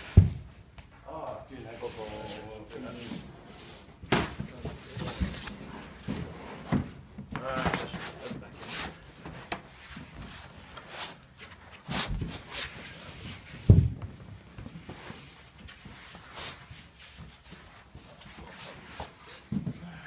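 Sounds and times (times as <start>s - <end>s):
knocks and thuds of parts: 13.6s - 14.2s.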